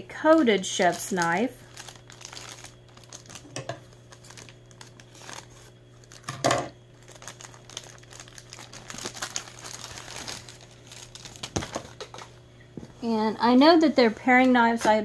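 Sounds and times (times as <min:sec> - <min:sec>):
packaging crinkling and rustling: 0:00.0 - 0:12.5.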